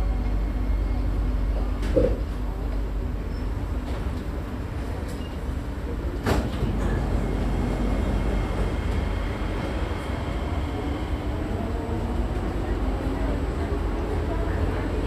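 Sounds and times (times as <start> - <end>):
train rumbling: 3.6 - 15.0.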